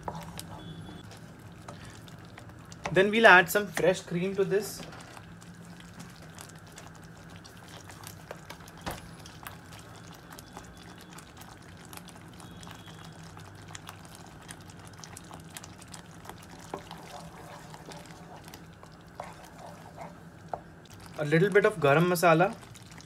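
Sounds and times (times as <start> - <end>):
gravy bubbles popping: 5.4 - 23.0.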